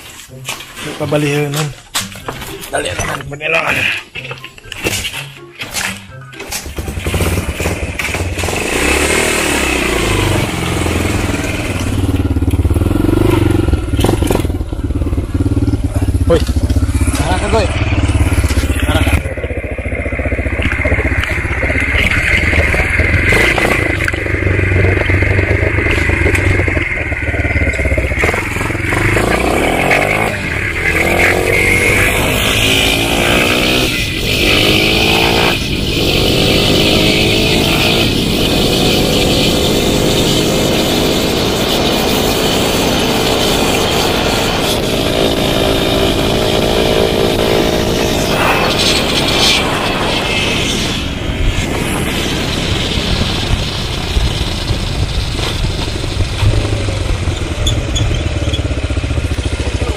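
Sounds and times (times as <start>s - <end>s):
motorcycle engine accelerating: 4.1s - 59.9s
wind on microphone: 35.8s - 57.4s.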